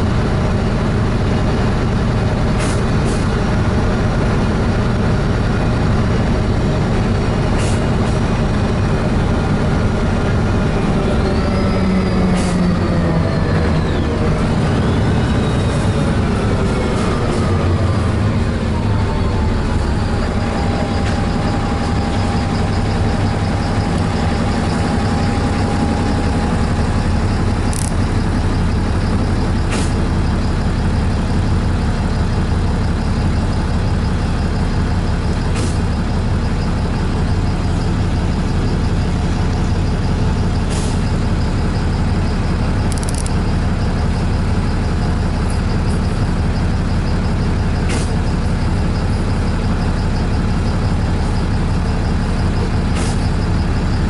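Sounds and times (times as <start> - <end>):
vehicle cabin rumble and road noise: 0.0 - 54.0.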